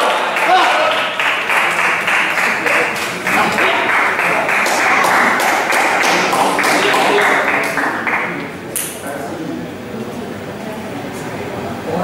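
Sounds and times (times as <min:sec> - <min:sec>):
crowd clapping: 0:00.0 - 0:09.0
voices: 0:00.0 - 0:12.0.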